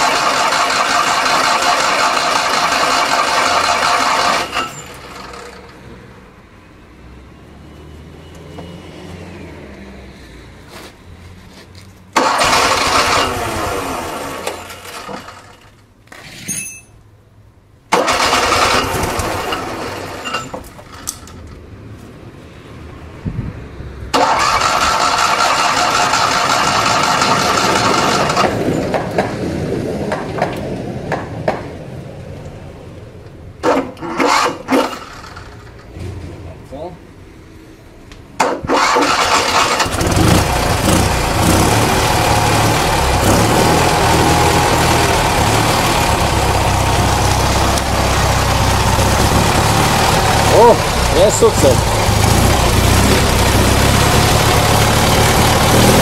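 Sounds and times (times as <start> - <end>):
car engine cranking and sputtering: 0.0 - 6.1, 12.1 - 15.9, 17.9 - 21.7, 24.1 - 31.7, 33.6 - 36.4, 38.4 - 56.0.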